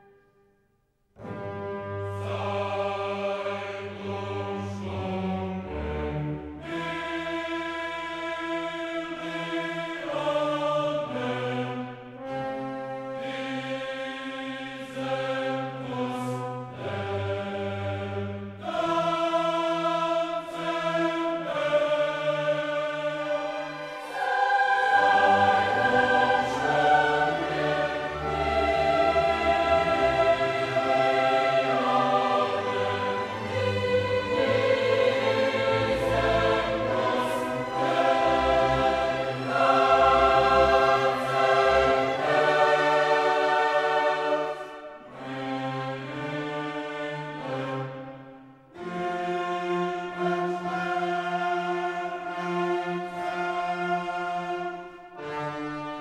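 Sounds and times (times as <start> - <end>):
choir voices holding chords: 1.2 - 56.0
orchestral music: 1.2 - 56.0.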